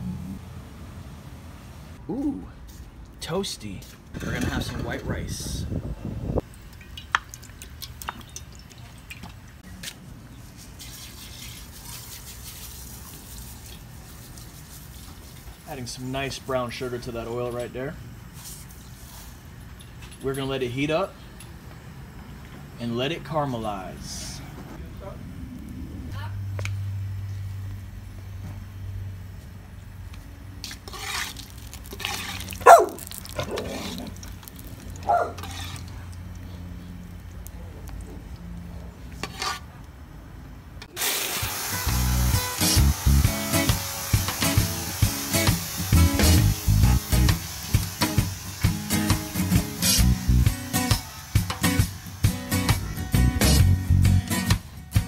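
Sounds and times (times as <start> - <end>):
oil crackling and spitting in pan: 6.5 - 9.6, 30.6 - 36.5, 40.9 - 52.8
steady low hum: 16.0 - 30.9
burner flame rumbling: 23.8 - 30.0
sugar sizzling in oil: 30.6 - 35.9, 40.9 - 52.8
metal spoon scraping a pot: 30.7 - 32.6, 35.3 - 36.0, 39.2 - 39.7.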